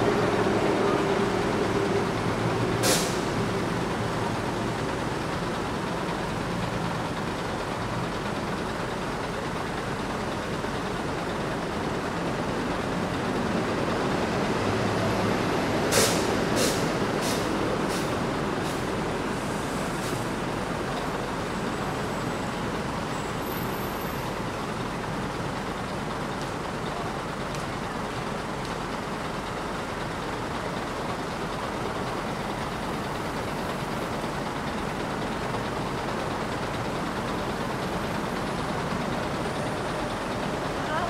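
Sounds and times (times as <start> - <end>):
diesel bus engine idling: 0.0 - 41.0
air hiss burst: 2.8 - 3.3, 15.9 - 18.8.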